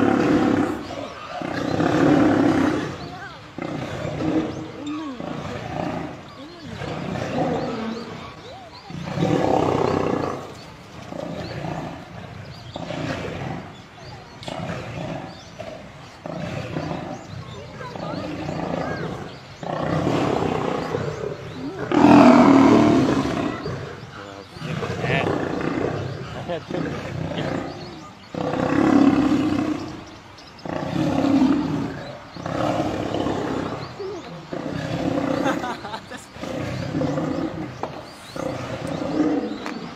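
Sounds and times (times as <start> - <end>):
lions growling in a fight: 0.0 - 39.9.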